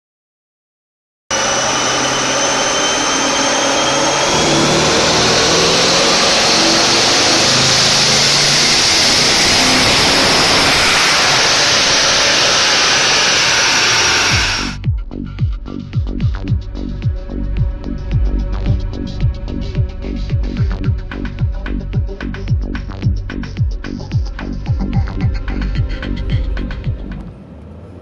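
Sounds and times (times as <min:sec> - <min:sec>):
engine running hard: 0:01.3 - 0:14.8, 0:16.6 - 0:28.0
turbo whine: 0:01.3 - 0:14.8
music with thumping beat: 0:14.7 - 0:27.2.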